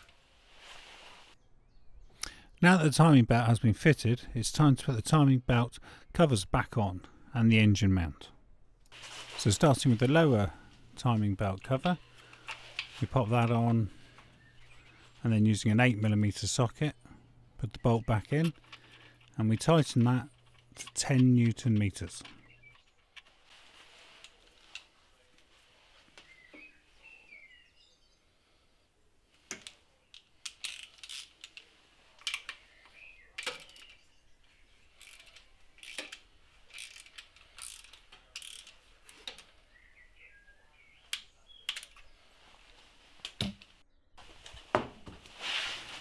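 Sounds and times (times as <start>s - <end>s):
hand ratchet clicking: 29.5s - 31.6s, 35.0s - 39.4s.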